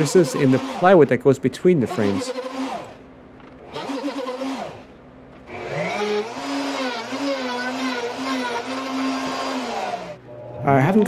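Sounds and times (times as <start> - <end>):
router motor cutting wood: 0.0 - 1.2, 1.8 - 3.0, 3.6 - 4.9, 5.5 - 10.2.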